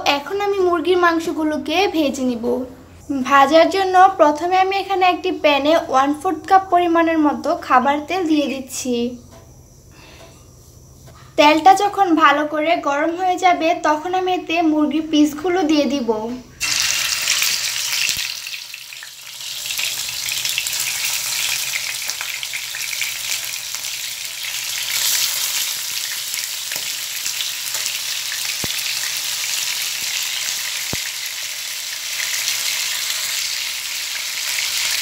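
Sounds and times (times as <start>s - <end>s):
chicken sizzling in hot oil: 16.6s - 35.0s.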